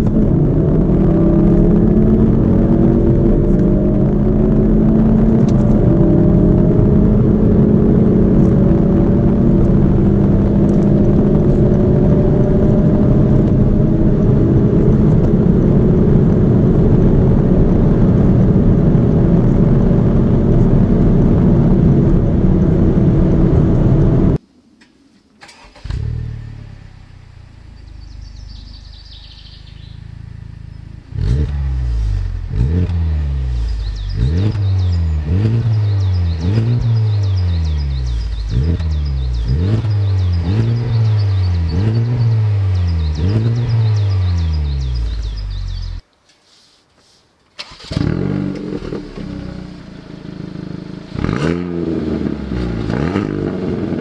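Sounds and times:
car engine at full throttle: 0.0s - 24.4s, 25.4s - 46.0s, 47.6s - 54.0s
car engine starting and idling: 0.0s - 24.4s, 25.3s - 46.0s, 47.5s - 54.0s
engine revving in quick blips: 25.4s - 46.0s, 47.6s - 54.0s.

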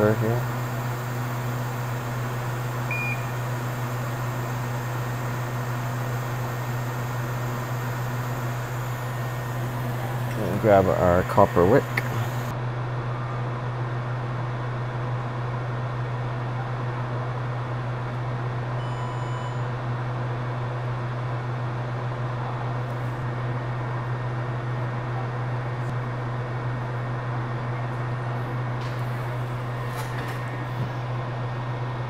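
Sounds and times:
fan whirring and humming: 0.0s - 18.9s, 19.7s - 32.0s
faint short tone: 2.9s - 3.4s, 18.8s - 19.7s.

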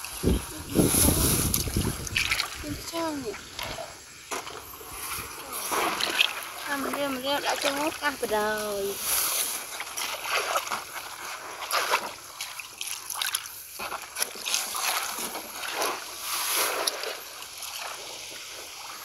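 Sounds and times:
splashing in shallow muddy water: 0.0s - 19.0s.

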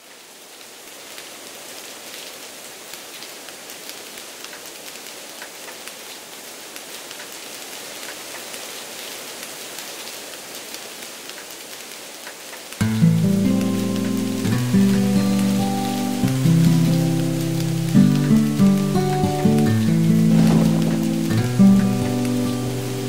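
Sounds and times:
heavy rain pouring: 0.0s - 23.0s
raindrops tapping close by: 3.0s - 8.7s, 10.6s - 23.0s.

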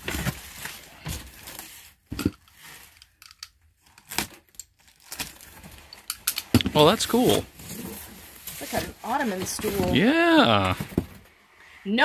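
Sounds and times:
cardboard box rustling and scraping: 0.0s - 2.9s, 7.0s - 12.0s.

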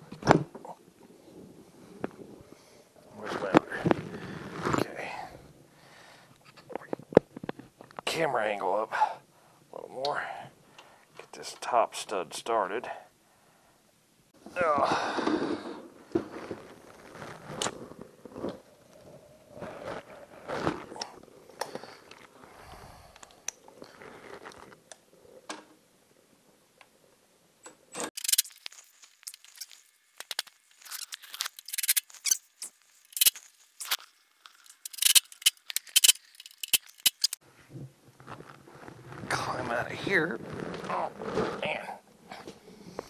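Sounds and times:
rapid metallic clicks: 34.5s - 37.4s.

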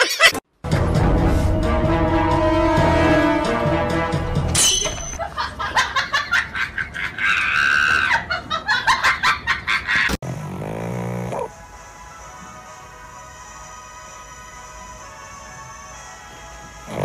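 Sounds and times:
background music: 0.5s - 5.2s, 10.3s - 17.0s.

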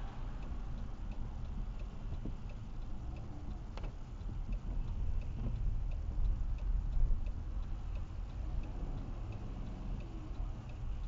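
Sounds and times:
road and engine rumble: 0.0s - 11.0s
car turn signal clicking: 0.4s - 11.0s.

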